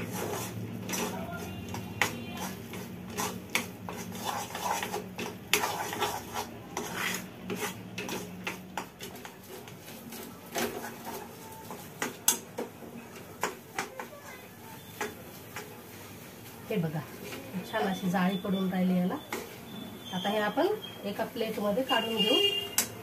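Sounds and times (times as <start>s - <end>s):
metal spoon scraping a steel pan: 0.0s - 12.2s.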